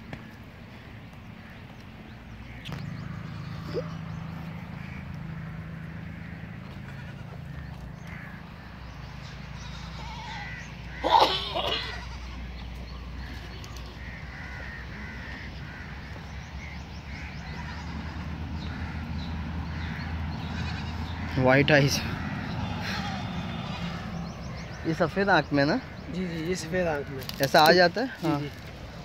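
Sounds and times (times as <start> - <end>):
goat bleating: 6.6 - 7.8, 9.2 - 15.4, 17.4 - 19.0, 20.4 - 21.4
fainter bleats from herd: 6.7 - 7.6, 9.5 - 12.5, 20.5 - 21.1.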